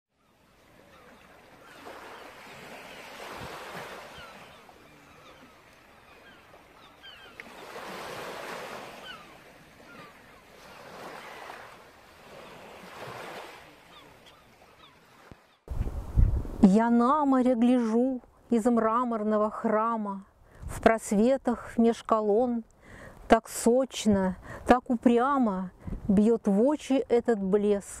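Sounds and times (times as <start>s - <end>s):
sea waves washing onto shore: 0.7s - 15.6s.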